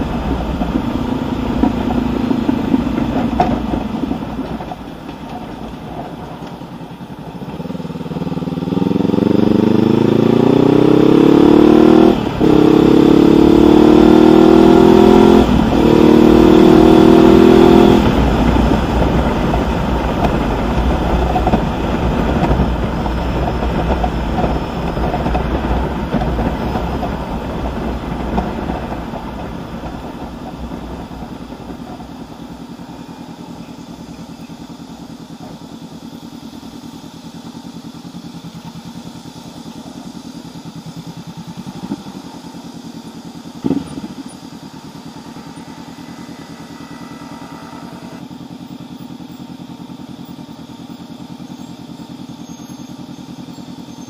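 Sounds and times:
exhaust burble: 0:00.0 - 0:54.0
motorcycle engine accelerating: 0:00.0 - 0:54.0.

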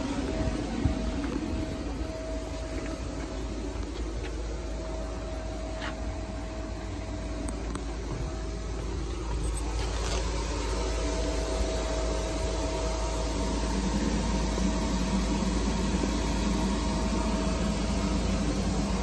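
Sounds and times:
electric air blower running: 0:00.0 - 0:19.0.

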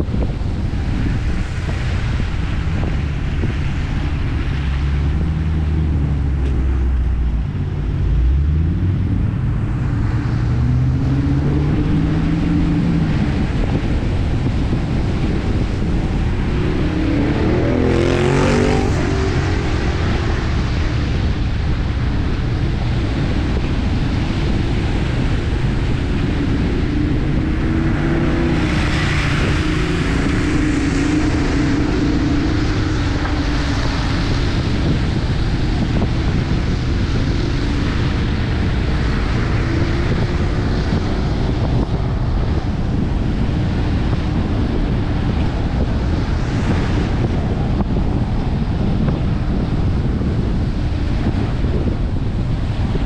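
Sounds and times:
tyre noise on wet road: 0:00.0 - 0:53.0
car engine revving: 0:01.0 - 0:48.0
rising and falling tones: 0:15.2 - 0:21.0.

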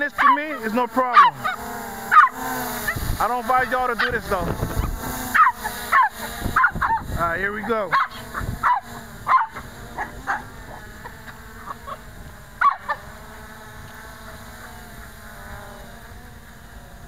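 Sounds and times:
quadcopter motors humming: 0:00.0 - 0:17.0
dog barking: 0:00.2 - 0:02.4, 0:05.4 - 0:07.0, 0:07.9 - 0:10.5, 0:12.6 - 0:13.0.

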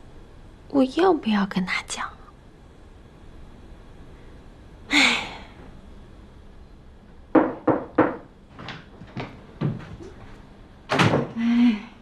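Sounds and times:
knocking on door: 0:07.3 - 0:09.8.

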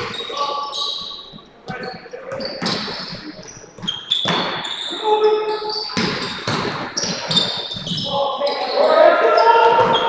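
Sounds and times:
sneaker squeaks: 0:00.0 - 0:10.0
players calling out: 0:07.0 - 0:10.0.

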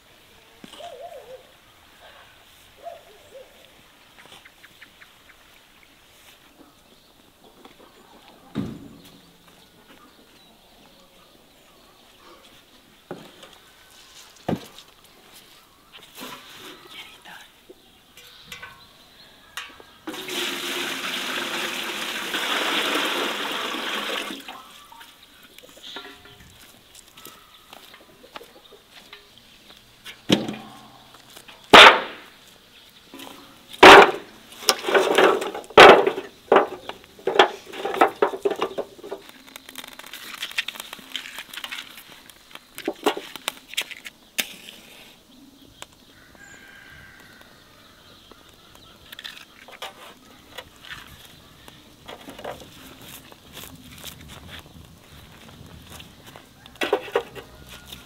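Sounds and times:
wood clunking in metal fire pan: 0:18.2 - 0:18.9, 0:25.8 - 0:26.4, 0:30.2 - 0:30.7, 0:31.7 - 0:32.3, 0:33.2 - 0:39.3, 0:42.8 - 0:43.5, 0:56.8 - 0:57.6
wood clattering: 0:31.6 - 0:32.3, 0:33.2 - 0:44.5, 0:56.6 - 0:58.0
wood knocking on wood: 0:33.8 - 0:39.2.

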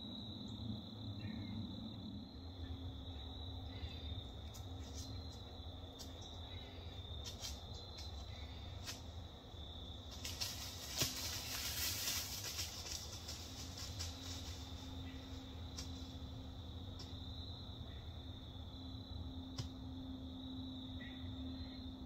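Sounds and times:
dry leaves rustling and crackling: 0:07.2 - 0:09.1, 0:09.9 - 0:16.2.

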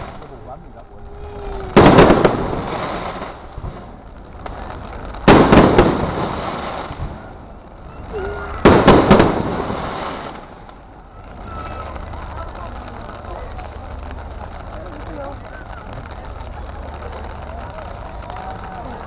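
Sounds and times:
fireworks bursting: 0:00.0 - 0:19.0.

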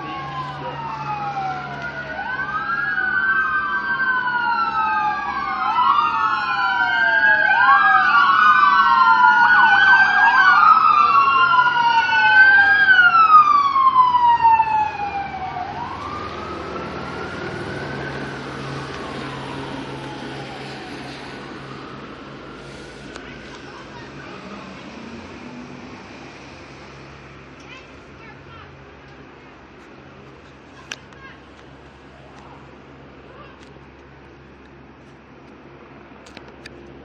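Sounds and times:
police sirens wailing: 0:00.0 - 0:27.2.

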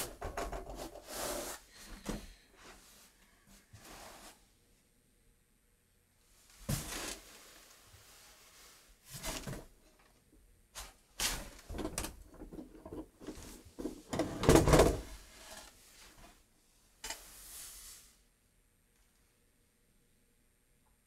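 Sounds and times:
objects knocked on wooden shelves: 0:00.0 - 0:01.0, 0:11.4 - 0:15.2.

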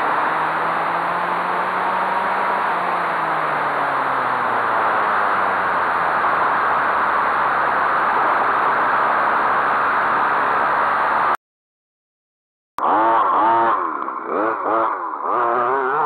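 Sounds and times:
drivetrain whine: 0:00.0 - 0:11.4, 0:12.8 - 0:16.0
wind and tyre noise: 0:00.0 - 0:11.4.

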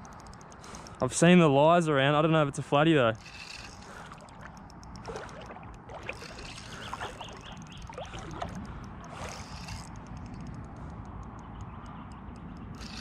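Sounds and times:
small clicks: 0:00.0 - 0:01.4, 0:03.1 - 0:13.0
water sloshing around legs: 0:03.2 - 0:10.6.

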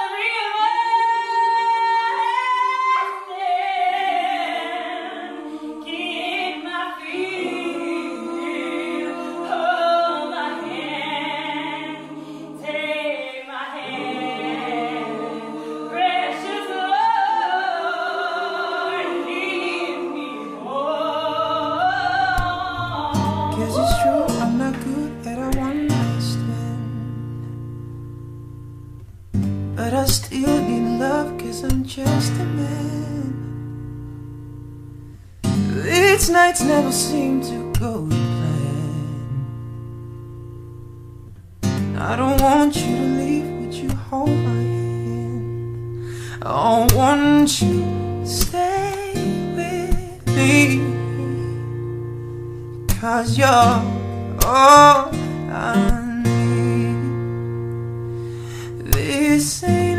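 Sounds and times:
women singing in harmony: 0:00.0 - 0:24.8
guitar and bass music: 0:22.4 - 0:58.9.

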